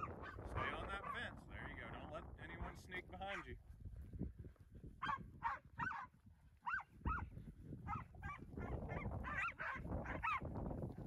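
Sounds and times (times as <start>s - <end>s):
dogs barking in high yips: 5.0s - 7.3s, 7.9s - 10.4s.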